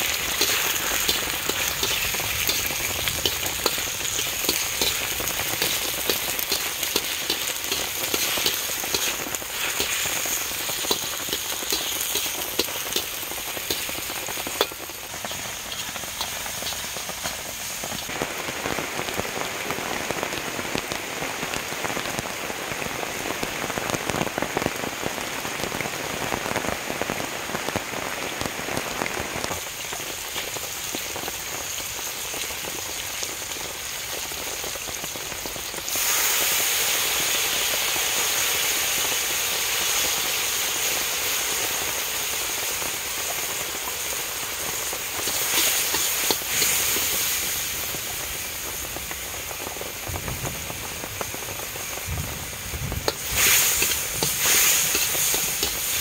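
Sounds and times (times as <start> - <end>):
wok hissing: 0.0 - 18.2, 35.5 - 56.0
rain on leaves and ground: 0.0 - 56.0.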